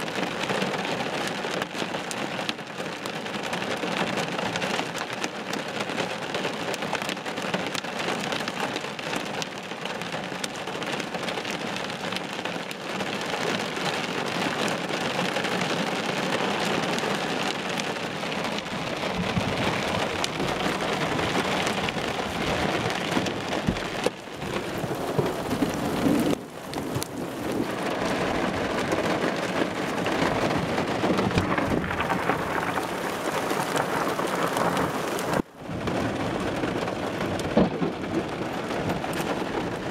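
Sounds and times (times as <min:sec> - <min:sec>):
heavy rain on car windshield: 0:00.0 - 0:39.9
deep thunder rumbling: 0:18.6 - 0:39.9.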